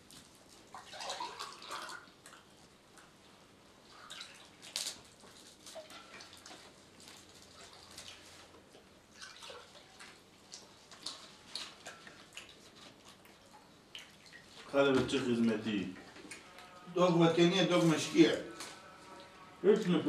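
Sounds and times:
liquid pouring and dripping: 0.1 - 3.2, 3.9 - 14.8.

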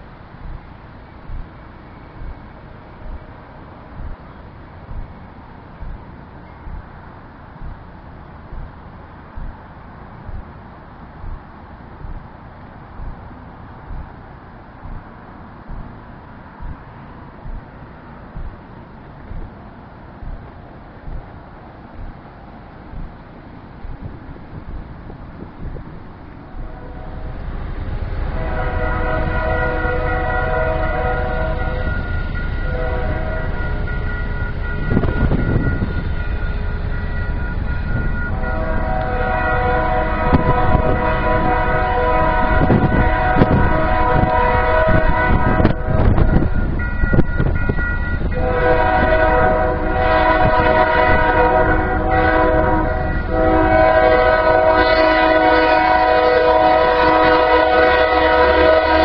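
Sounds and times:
low rumble of moving train: 0.0 - 59.0
train air horn blasts: 26.5 - 59.0.

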